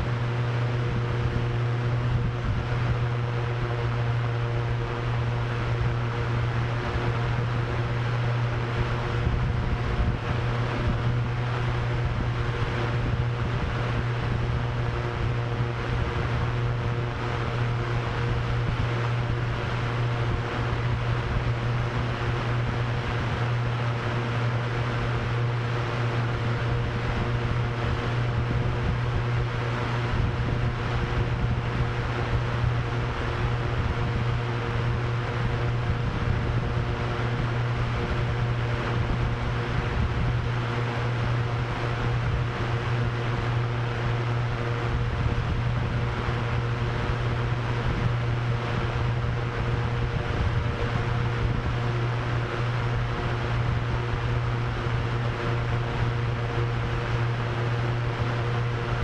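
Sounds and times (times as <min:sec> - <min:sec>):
drone propellers humming: 0:00.0 - 0:59.0.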